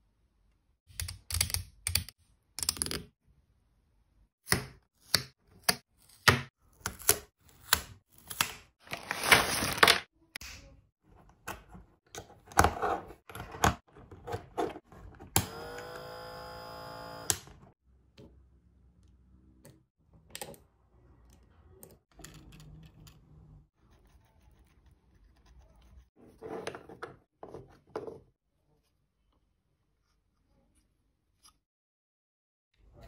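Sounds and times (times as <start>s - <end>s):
plastic bag rustling: 8.8s - 10.1s.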